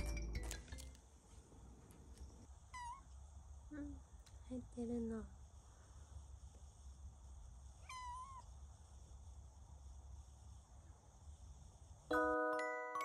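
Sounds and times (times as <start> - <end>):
kitten meowing: 2.7 - 3.1, 7.8 - 8.5.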